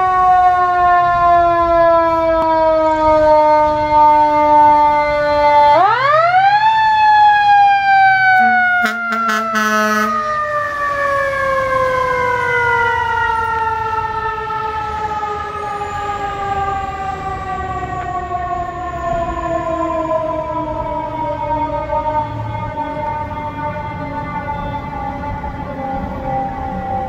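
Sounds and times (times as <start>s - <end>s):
mechanical siren wailing: 0.0s - 27.0s
fire engine horn blast: 1.3s - 6.0s, 8.2s - 13.6s.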